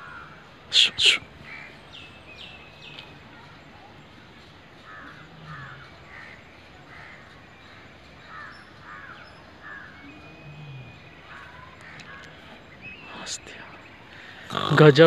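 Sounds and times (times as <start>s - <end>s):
faint short bird calls: 0.0s - 2.1s.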